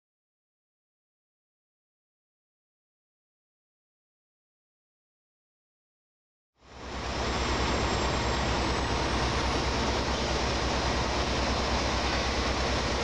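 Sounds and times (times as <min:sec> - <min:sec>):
heavy engine running: 0:06.6 - 0:13.0.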